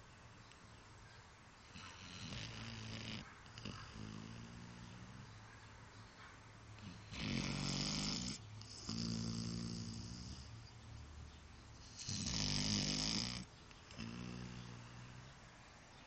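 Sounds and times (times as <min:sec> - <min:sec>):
dog snoring: 0:01.7 - 0:05.3, 0:06.8 - 0:10.6, 0:11.8 - 0:15.4.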